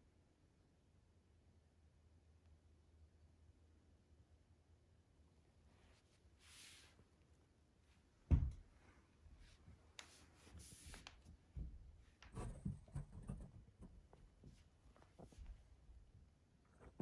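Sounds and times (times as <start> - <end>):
fur rubbing against microphone: 5.8 - 7.0
soft bumps: 8.2 - 8.8.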